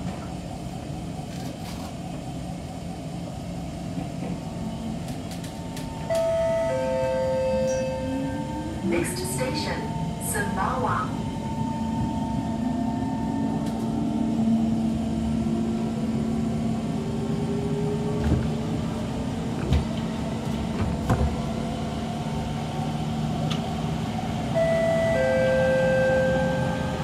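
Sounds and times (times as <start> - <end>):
train running rumble: 0.0 - 27.0.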